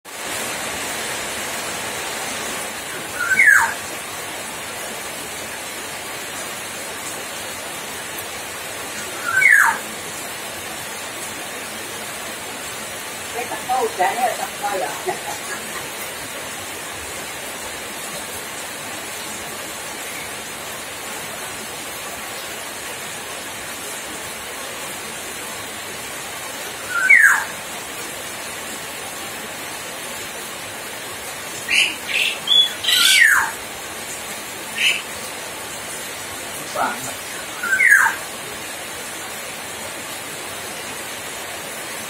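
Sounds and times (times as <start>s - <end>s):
steady hiss: 0.1s - 42.0s
myna whistled calls: 3.1s - 3.8s, 9.0s - 9.8s, 26.9s - 27.5s, 31.7s - 33.6s, 34.8s - 35.1s, 36.8s - 38.2s.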